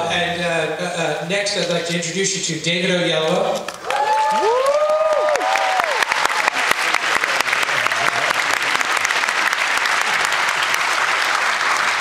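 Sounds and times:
large audience applauding: 0:03.6 - 0:12.0.

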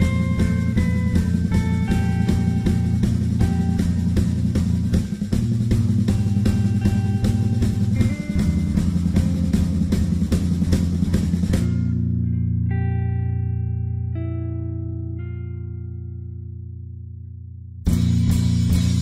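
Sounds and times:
drum kit playing a beat: 0:00.0 - 0:12.1, 0:17.9 - 0:19.0
bass and guitar playing: 0:00.0 - 0:19.0.

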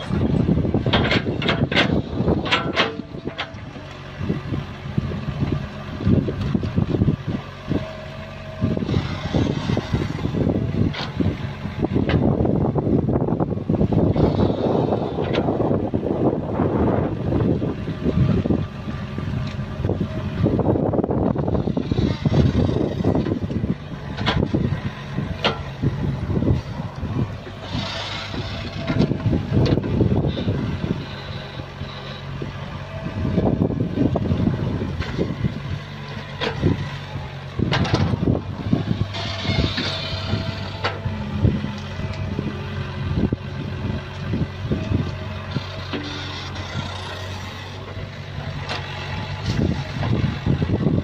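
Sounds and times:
hydraulic low clatter: 0:00.0 - 0:04.4, 0:13.9 - 0:18.6, 0:19.2 - 0:32.2, 0:32.9 - 0:42.5, 0:43.1 - 0:51.0
excavator diesel engine: 0:00.0 - 0:51.0.

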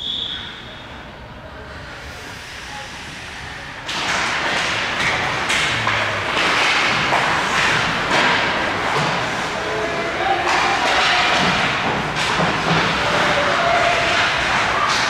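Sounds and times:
puck and sticks knocking boards: 0:03.9 - 0:15.0
skates scraping ice: 0:04.0 - 0:15.0.

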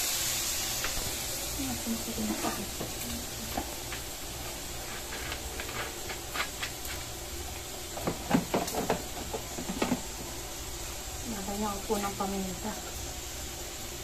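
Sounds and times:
meat hissing in a pan: 0:00.0 - 0:14.0
spatula scraping a pan: 0:04.8 - 0:07.1.

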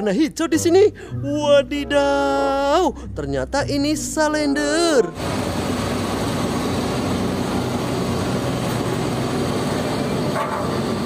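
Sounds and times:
road roller diesel engine running: 0:05.1 - 0:11.0.

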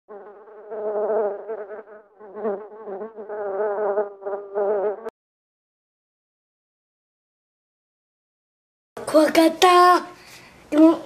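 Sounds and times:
wasp buzzing in flight: 0:00.1 - 0:05.1.

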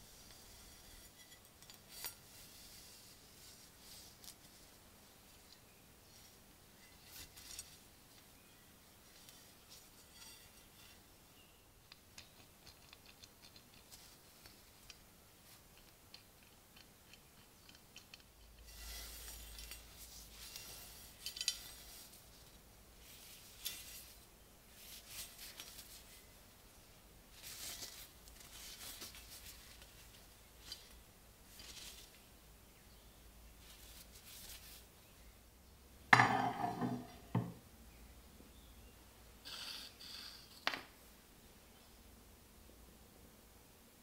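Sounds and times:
rustling and scraping: 0:00.0 - 0:11.5, 0:12.2 - 0:26.4, 0:27.3 - 0:32.3, 0:33.6 - 0:34.9, 0:36.1 - 0:37.5
metal handling ticks: 0:15.6 - 0:18.7.

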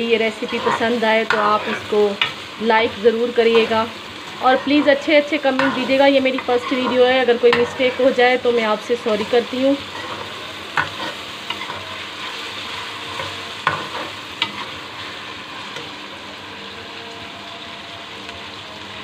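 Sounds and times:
onions sizzling in oil: 0:00.0 - 0:19.0
spoon clinking and scraping pan: 0:09.0 - 0:14.8.

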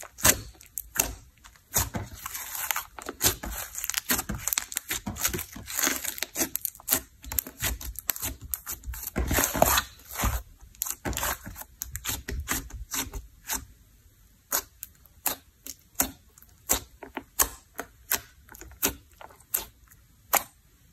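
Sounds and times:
slime squishing and popping: 0:00.0 - 0:13.2.

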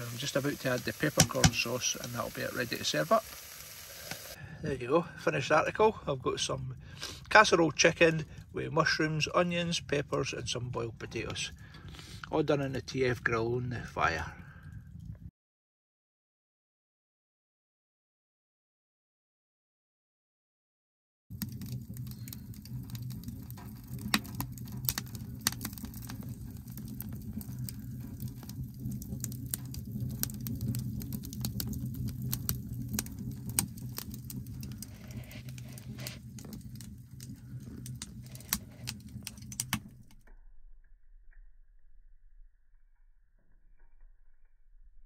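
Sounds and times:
wood fire crackling: 0:00.0 - 0:15.2, 0:21.3 - 0:40.4
low rumble of stove: 0:00.0 - 0:15.3, 0:21.3 - 0:45.0.

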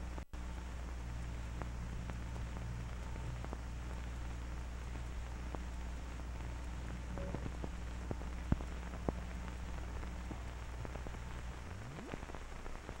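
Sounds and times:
crackles and pops: 0:00.0 - 0:13.0
low steady hum: 0:00.0 - 0:13.0.

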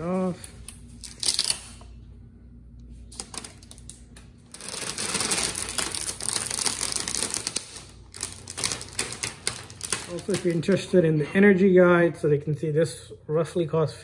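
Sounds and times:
plastic film crinkling: 0:03.0 - 0:11.0.

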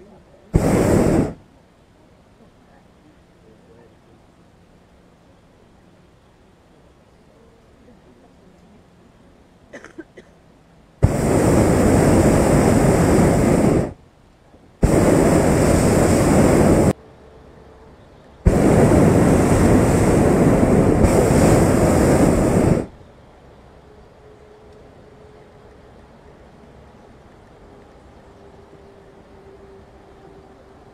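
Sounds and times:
propane burner blasts: 0:00.5 - 0:01.5, 0:11.0 - 0:14.0, 0:14.7 - 0:17.0, 0:18.4 - 0:23.0.

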